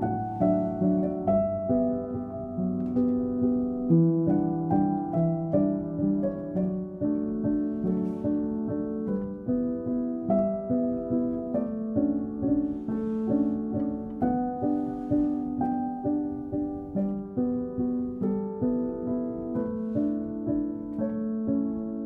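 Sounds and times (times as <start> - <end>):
gentle plucked melody: 0.0 - 22.0.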